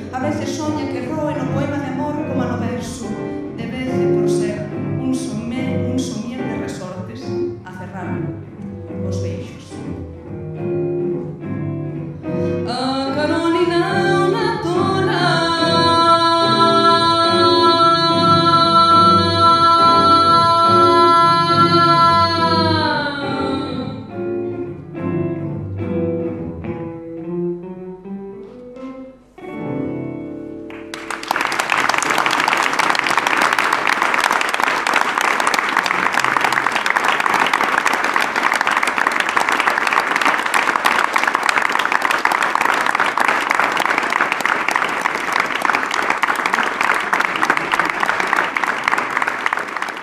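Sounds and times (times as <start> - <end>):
audience applause: 30.7 - 50.0.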